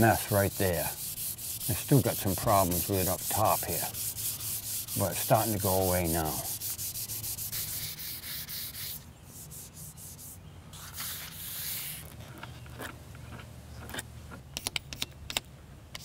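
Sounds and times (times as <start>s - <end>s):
hand sanding wood: 0.0s - 10.4s.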